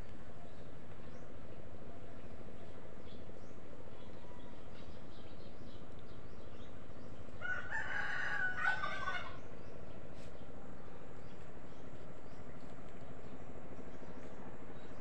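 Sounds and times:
rooster crowing: 7.4 - 9.4.

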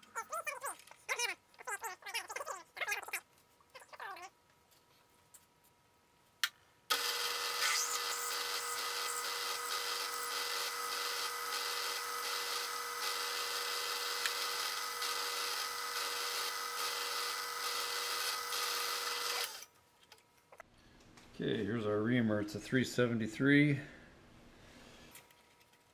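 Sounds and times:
milling machine spindle whine: 6.9 - 19.6
drill boring into aluminum: 6.9 - 19.7.

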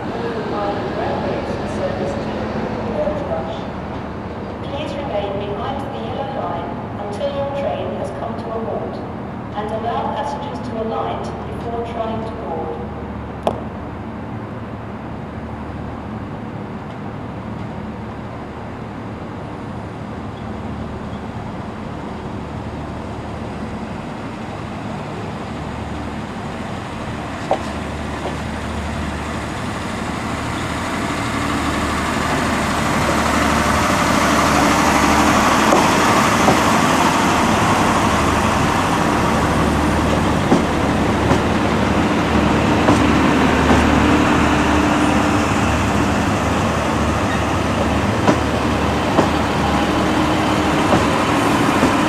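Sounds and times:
diesel train engines: 0.0 - 52.0
train wheels on rails: 20.3 - 52.0.

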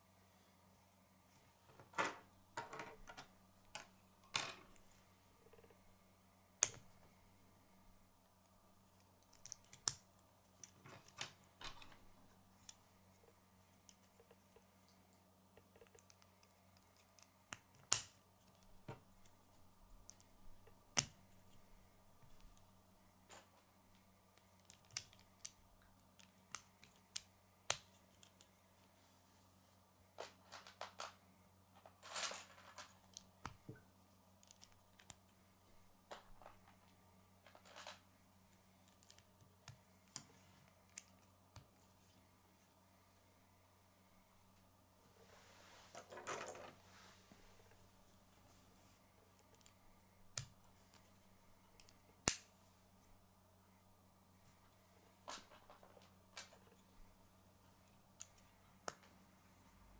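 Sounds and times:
rattle of handled parts: 31.8 - 33.0.

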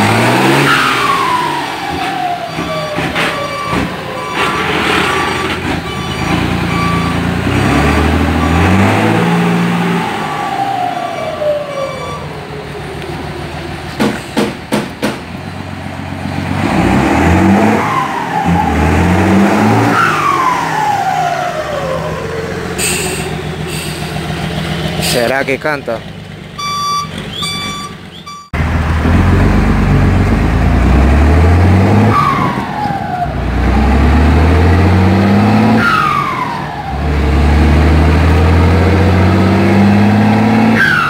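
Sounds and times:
diesel truck engine revving: 0.0 - 41.0
turbo whistle gliding tone: 11.2 - 12.4.

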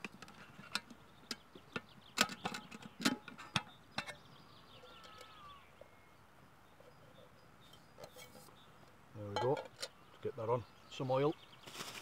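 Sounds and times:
metal cook pot and lid clinking: 0.1 - 4.2, 9.3 - 10.0.

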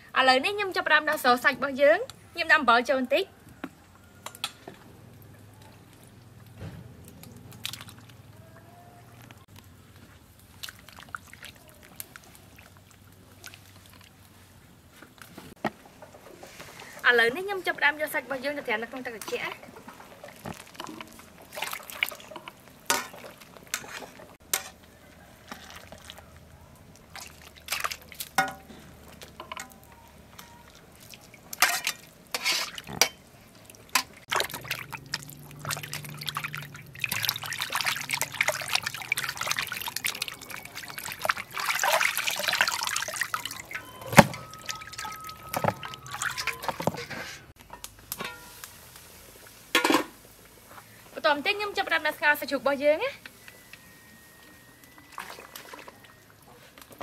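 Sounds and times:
water splashing and trickling: 5.2 - 15.2, 16.3 - 47.6, 54.4 - 57.0
metal ladle clank: 28.4 - 28.8, 31.6 - 33.2, 43.4 - 48.6.

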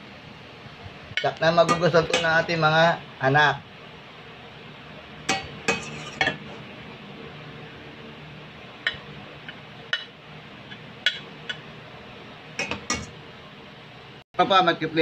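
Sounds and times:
low steady hum: 0.0 - 14.2
metal spatula scraping a pan: 5.3 - 6.6.

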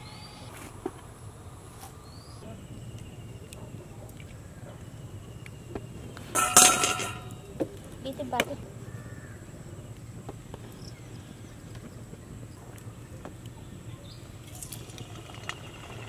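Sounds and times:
metal pan clattering: 6.4 - 7.3.

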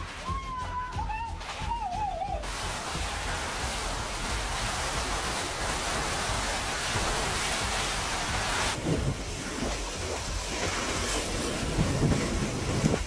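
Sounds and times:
driving rain: 2.4 - 13.0
wind thumps on microphone: 7.0 - 13.0
strong wind: 8.1 - 10.4, 11.2 - 13.0.

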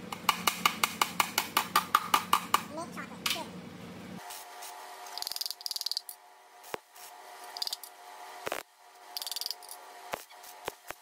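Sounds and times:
arc welder buzzing and crackling: 4.2 - 11.0.

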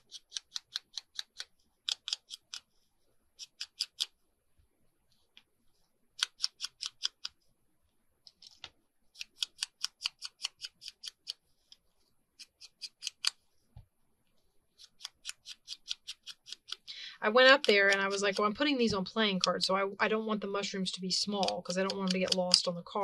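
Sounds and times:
scissors snipping paper: 0.0 - 2.7, 3.4 - 4.1, 6.2 - 7.3, 9.2 - 11.4, 12.4 - 13.4, 14.8 - 18.8, 21.2 - 22.8.

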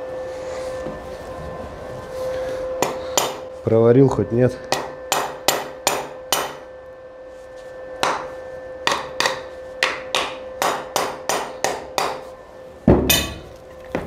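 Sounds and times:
hammer striking metal: 2.8 - 3.5, 4.6 - 6.6, 8.0 - 12.2, 12.9 - 13.5.

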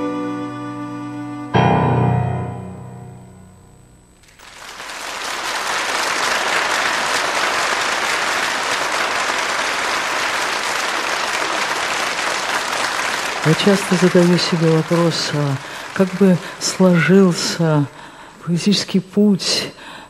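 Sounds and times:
violin and piano chord: 0.0 - 4.0
audience applause: 4.2 - 18.1.

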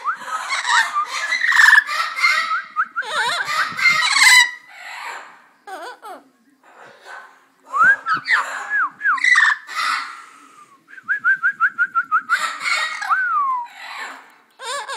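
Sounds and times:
parrot whistling and squawking: 0.0 - 6.0, 7.9 - 10.2, 12.3 - 14.9.

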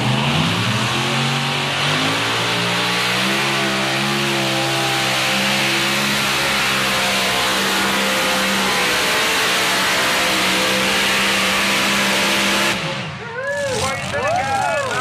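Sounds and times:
tractor engine drone: 0.0 - 15.0.

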